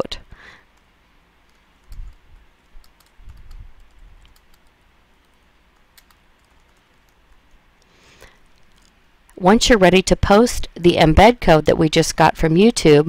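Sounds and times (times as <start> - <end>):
keyboard key clicks: 1.5 - 7.6.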